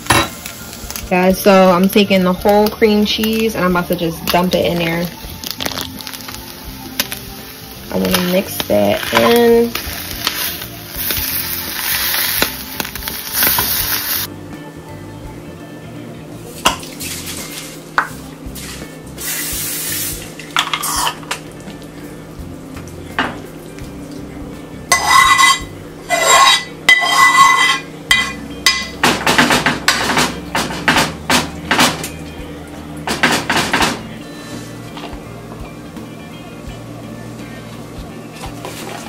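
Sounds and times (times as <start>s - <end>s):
metal utensil scraping skillet: 20.7s - 21.2s, 24.9s - 28.9s.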